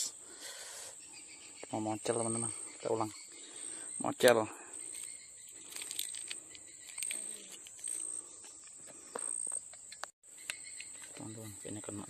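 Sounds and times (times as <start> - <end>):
insects trilling: 0.0 - 12.0
rustling of dry leaves: 4.8 - 9.6.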